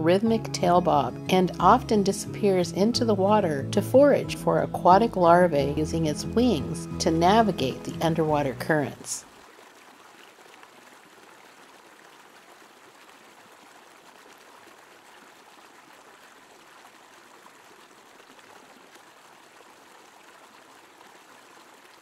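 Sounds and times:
stream rushing over boulders: 8.9 - 22.0.

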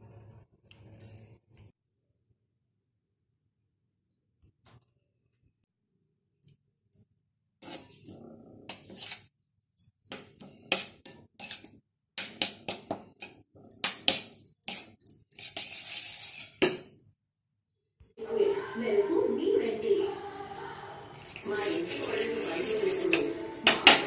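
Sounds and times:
utensils and dishes clattering: 7.6 - 9.2, 10.0 - 17.0, 21.1 - 24.0.

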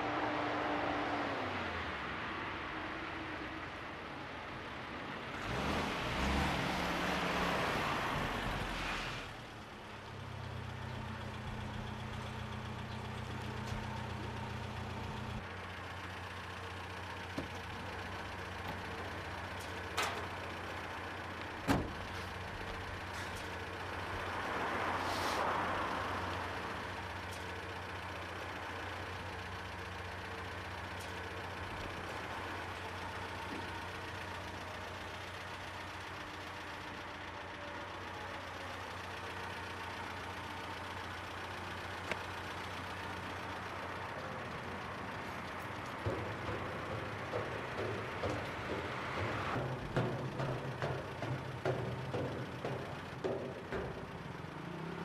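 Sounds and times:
car engine idling: 9.4 - 55.0
car passing: 23.1 - 27.2, 42.1 - 55.0
sharp knocks: 45.8 - 54.8.

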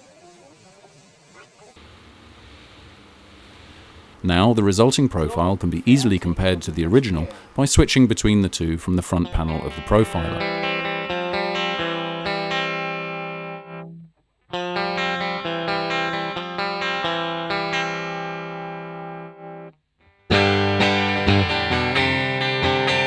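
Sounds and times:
electric guitar chords: 8.7 - 23.0.

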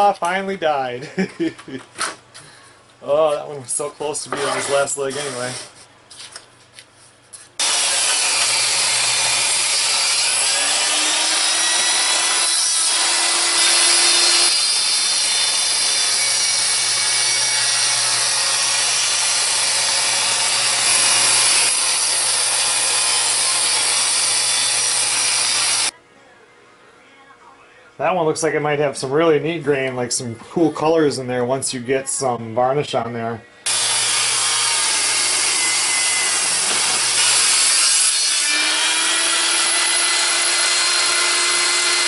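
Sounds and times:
table saw ripping wood: 7.6 - 25.9, 33.7 - 42.0.

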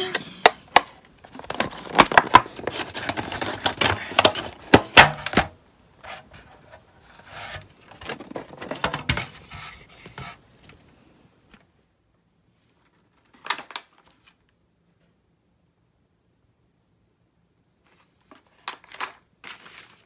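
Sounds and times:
plastic food box crackling: 0.4 - 10.9
packaging rustling: 0.7 - 5.5, 18.2 - 20.0.

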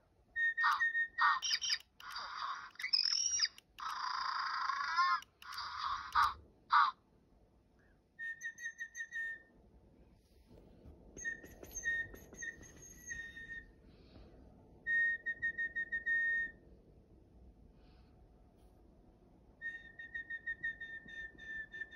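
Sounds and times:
whistling quick toots: 8.2 - 9.5, 11.2 - 13.8, 19.6 - 21.9.

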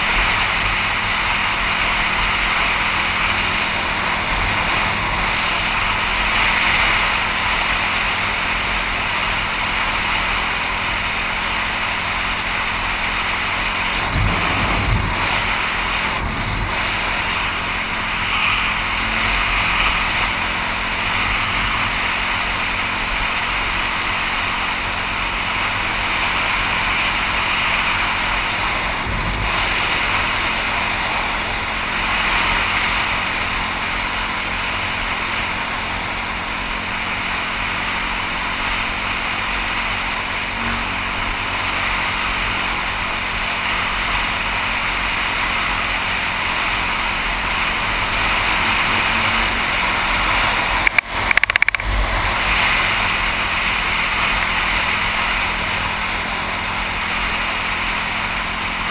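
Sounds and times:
faint dirt bike engine drone: 0.0 - 58.9
low wind buffets: 0.0 - 58.9
wind rushing over microphone: 12.8 - 23.4, 24.8 - 36.1.

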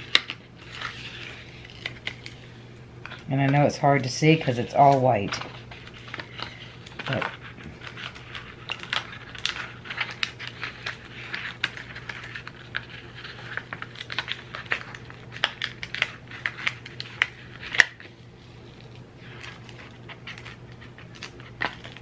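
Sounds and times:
sticker sheet crackling: 3.0 - 22.0.

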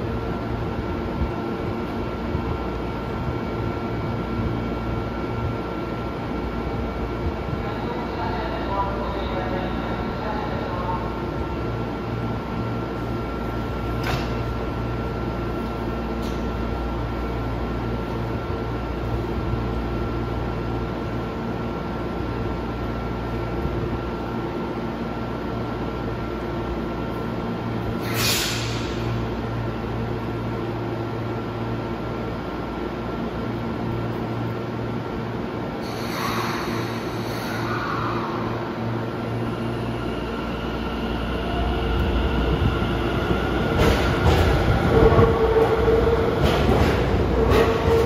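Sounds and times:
subway platform hum and hiss: 0.0 - 48.0.

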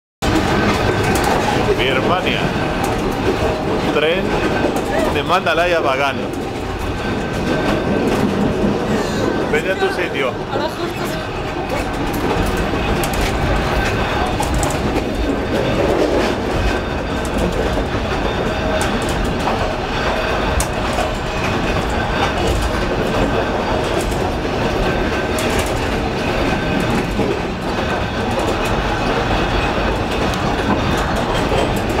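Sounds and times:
sharp clicks and knocks: 0.2 - 4.9
train rumbling rattle: 0.2 - 32.0.

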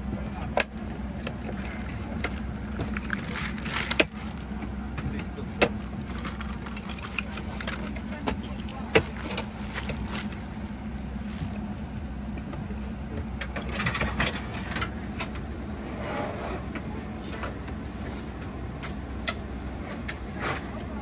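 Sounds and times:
cabin air system hum: 0.0 - 21.0
plastic wrapping crinkling: 1.5 - 4.5, 5.8 - 12.0.

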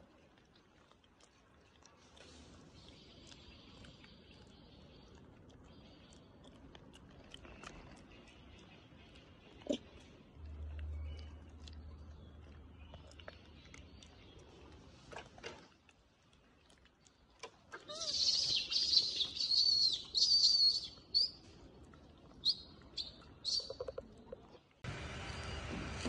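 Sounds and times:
birds chirping: 17.9 - 25.8.

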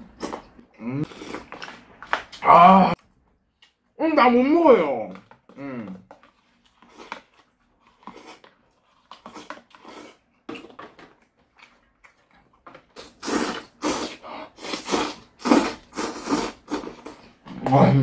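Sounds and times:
loud slurping and chewing: 5.5 - 17.8.

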